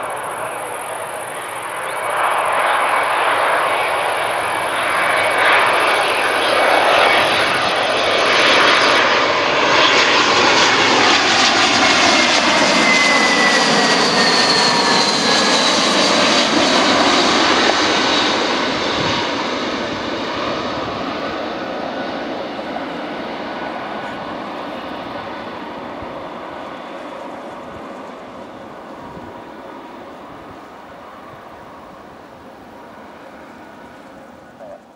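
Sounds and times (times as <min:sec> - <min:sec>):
jet airliner passing overhead: 0:00.0 - 0:34.9.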